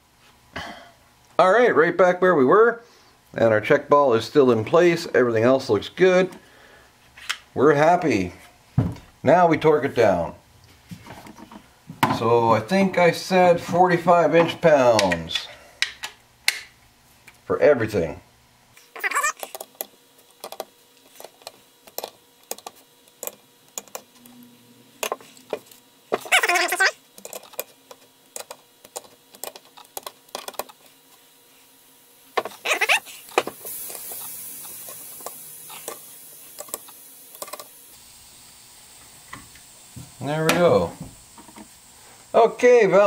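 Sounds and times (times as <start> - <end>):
torque wrench ratcheting clicks: 33.7 - 37.7.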